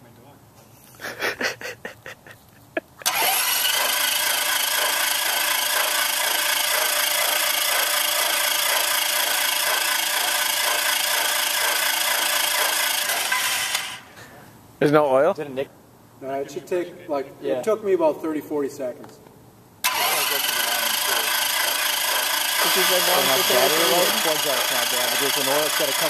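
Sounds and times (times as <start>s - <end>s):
aircraft engine cranking: 3.0s - 14.1s, 19.8s - 26.0s.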